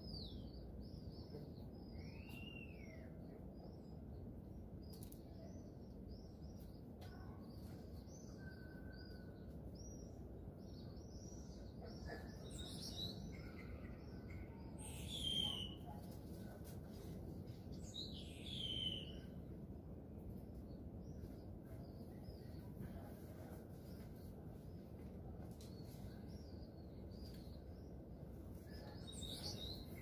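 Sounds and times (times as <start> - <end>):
small birds chirping: 0.0 - 30.0
steady low background noise: 0.0 - 30.0.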